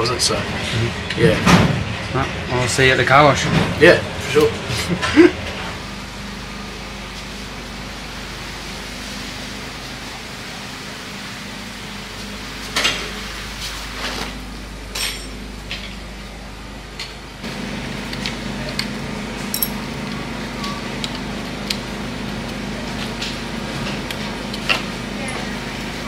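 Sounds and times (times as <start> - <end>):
metallic tool clinks: 19.5 - 19.8.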